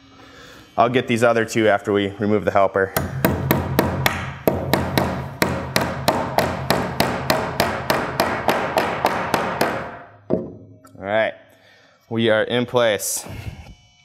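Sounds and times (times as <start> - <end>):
hammer striking nails: 3.0 - 10.7.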